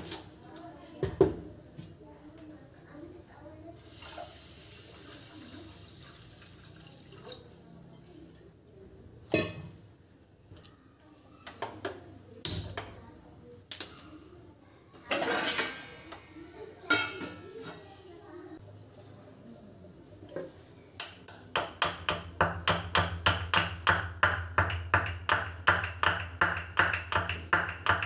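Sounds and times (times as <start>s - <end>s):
water pouring into a steel pot: 3.8s - 7.7s
steel kitchenware clinking: 9.1s - 10.3s, 15.1s - 17.9s.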